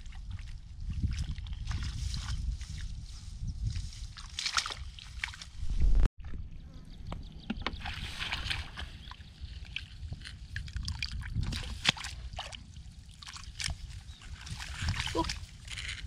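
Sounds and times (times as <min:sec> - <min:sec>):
splashing in muddy water: 0:04.1 - 0:05.5, 0:07.6 - 0:16.0.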